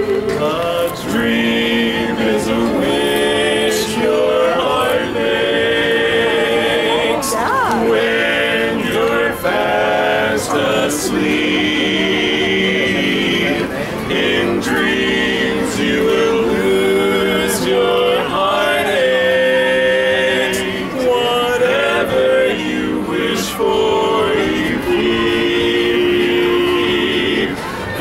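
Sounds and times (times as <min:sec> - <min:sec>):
men singing a cappella harmony: 0:00.0 - 0:28.0.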